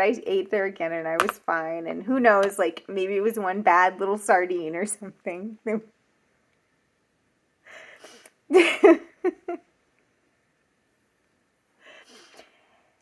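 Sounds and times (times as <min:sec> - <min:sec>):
woman laughing: 0:08.5 - 0:09.7.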